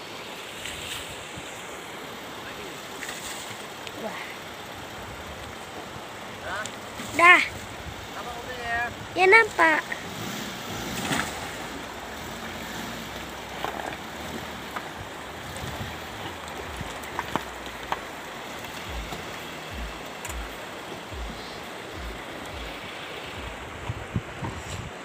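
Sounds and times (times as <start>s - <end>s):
river water rushing: 0.0s - 25.0s
vehicle driving through stony river: 0.0s - 25.0s
dull low thumps: 15.3s - 25.0s.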